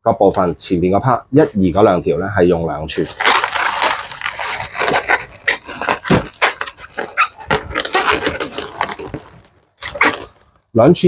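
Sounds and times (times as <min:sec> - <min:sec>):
balloons squeaking and rubbing: 0:02.9 - 0:10.7.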